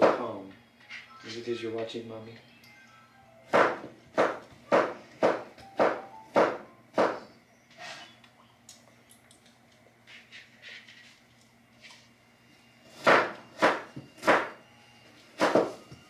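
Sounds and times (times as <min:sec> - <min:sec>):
sharp knocks: 0:03.5 - 0:07.2.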